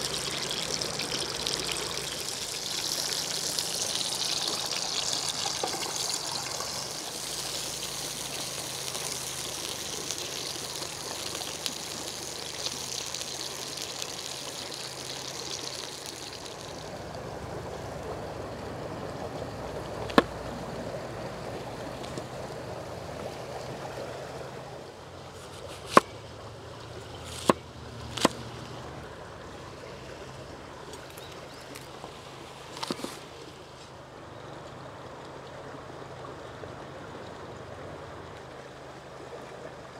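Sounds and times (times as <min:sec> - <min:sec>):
pork sizzling in oil: 0:00.0 - 0:17.6
knife chopping on wooden board: 0:25.5 - 0:26.1, 0:27.3 - 0:28.4.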